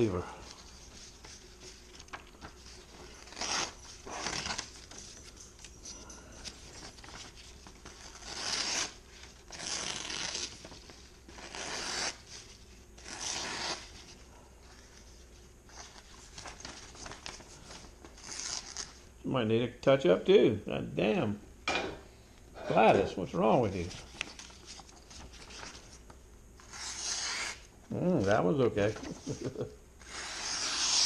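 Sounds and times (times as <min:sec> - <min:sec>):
cleaver cutting tearing paper: 0:30.0 - 0:31.0.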